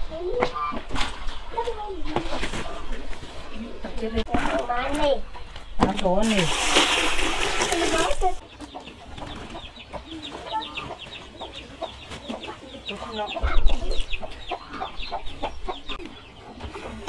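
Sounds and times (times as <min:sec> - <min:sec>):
chickens clucking: 0:00.3 - 0:17.0
water splashing into a bucket: 0:06.2 - 0:08.4
chicks peeping: 0:08.2 - 0:17.0.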